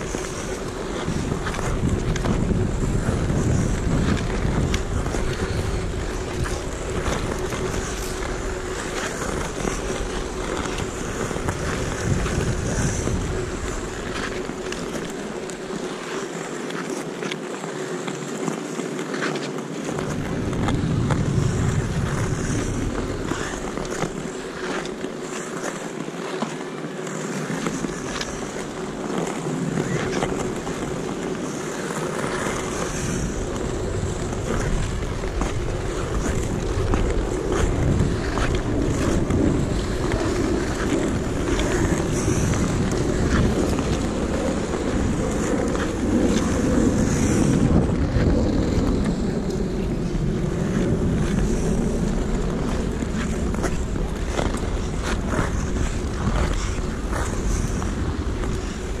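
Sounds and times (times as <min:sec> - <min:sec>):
wind noise on microphone: 0:00.0 - 0:16.3, 0:19.8 - 0:59.0
ice skates scraping on ice: 0:00.0 - 0:59.0.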